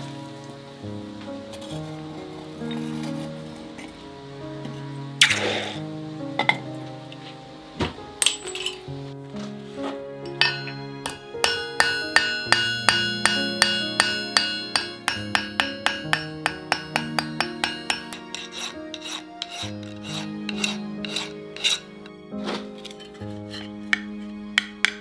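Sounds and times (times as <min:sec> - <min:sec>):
soft background music: 0:00.0 - 0:25.0
hammer tapping metal on anvil: 0:10.2 - 0:21.8, 0:23.9 - 0:25.0.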